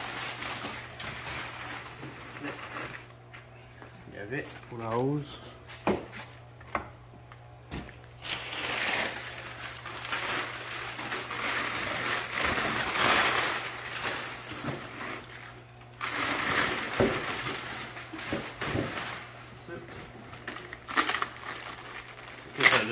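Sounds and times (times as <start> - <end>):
packing paper rustling and crinkling: 0.0 - 3.4, 8.1 - 22.9.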